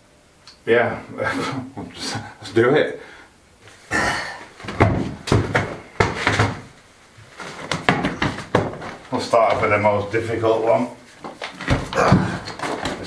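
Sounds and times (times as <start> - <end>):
heavy stone rolling on floor: 4.6 - 9.8, 11.2 - 13.0.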